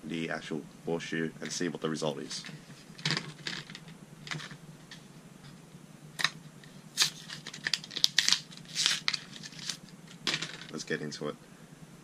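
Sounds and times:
blister pack crinkling and tearing: 0:07.0 - 0:09.9.

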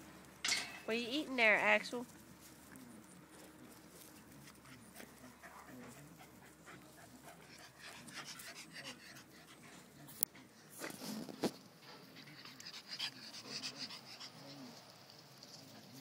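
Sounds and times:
dog crunching an apple: 0:02.0 - 0:06.0
dog panting: 0:03.0 - 0:11.0, 0:11.8 - 0:16.0.

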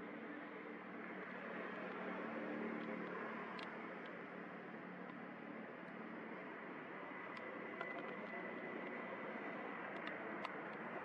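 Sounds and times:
faint clicks: 0:02.8 - 0:04.2, 0:07.3 - 0:11.0.

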